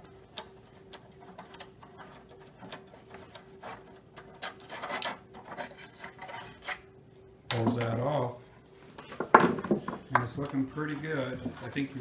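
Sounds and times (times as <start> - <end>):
metal clicks and scrapes on wood: 0.0 - 6.8.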